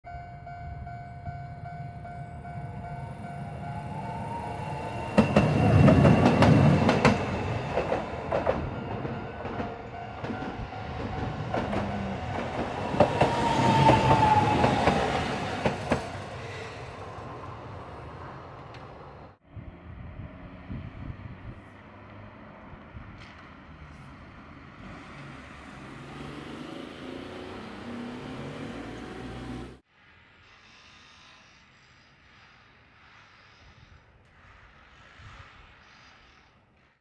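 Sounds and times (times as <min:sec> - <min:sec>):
level crossing warning signal: 0:00.1 - 0:06.5, 0:08.3 - 0:15.8
tram passing: 0:00.1 - 0:30.6
tram whine: 0:00.1 - 0:36.4
wheels clattering over rail joints: 0:05.1 - 0:16.2.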